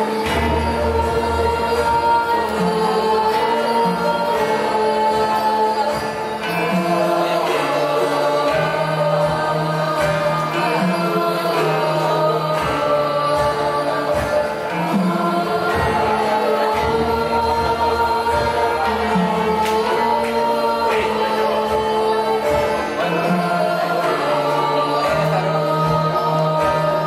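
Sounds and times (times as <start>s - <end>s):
gamelan ensemble playing: 0.0s - 27.0s
voices singing in chorus: 0.0s - 27.0s.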